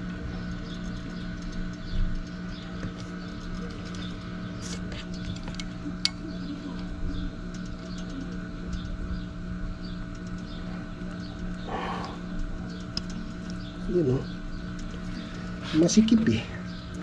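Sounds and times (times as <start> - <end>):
steady hum: 0.0 - 17.0.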